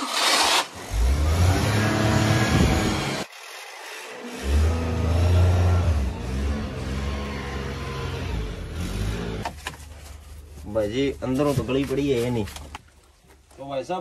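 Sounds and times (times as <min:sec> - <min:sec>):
car engine revving: 0:00.0 - 0:03.3, 0:04.2 - 0:09.6.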